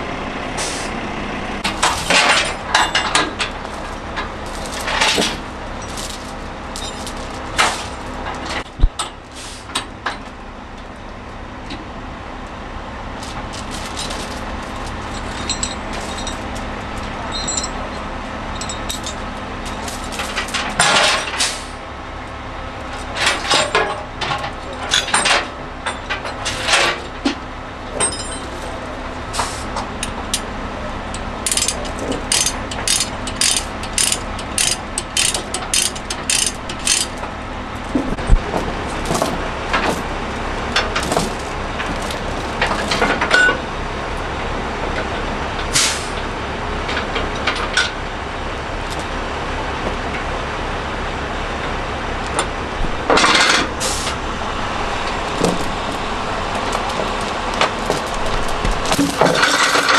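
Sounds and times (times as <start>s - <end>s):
vehicle engine idling: 0.0s - 20.8s, 21.6s - 59.9s
steel chains clinking and rattling: 1.6s - 9.1s, 13.2s - 21.4s, 22.3s - 27.3s, 27.9s - 43.6s, 48.6s - 49.2s, 52.2s - 59.9s.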